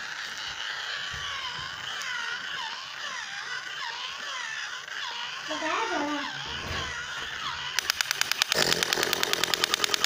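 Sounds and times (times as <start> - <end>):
toy siren warbling: 0.0 - 10.0.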